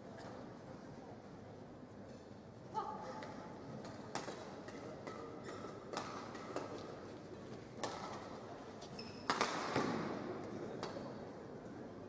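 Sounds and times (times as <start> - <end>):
shoes squeaking on court: 8.8 - 9.4.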